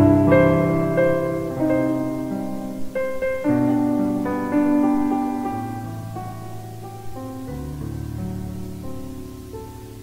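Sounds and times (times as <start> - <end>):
background piano music: 0.0 - 10.0.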